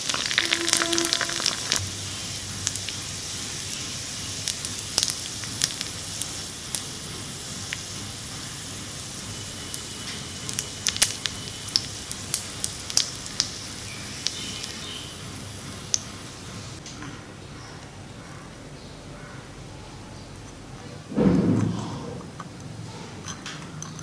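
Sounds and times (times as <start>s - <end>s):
deep-frying sizzle with pops: 0.0s - 17.0s.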